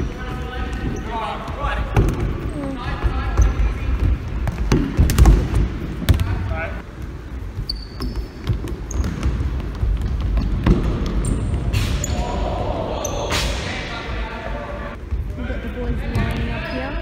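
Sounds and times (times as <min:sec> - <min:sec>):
shoes squeaking on floor: 0:00.0 - 0:01.6, 0:02.4 - 0:04.5, 0:07.3 - 0:12.2, 0:16.4 - 0:17.0
ball kicked and bouncing on wooden floor: 0:08.0 - 0:11.3.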